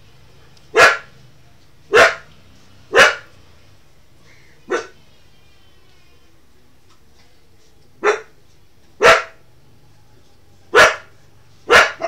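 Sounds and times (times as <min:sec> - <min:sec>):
dog barking: 0:00.7 - 0:01.2, 0:01.9 - 0:02.3, 0:02.9 - 0:03.4, 0:04.7 - 0:05.0, 0:08.0 - 0:08.4, 0:09.0 - 0:09.4, 0:10.7 - 0:12.0.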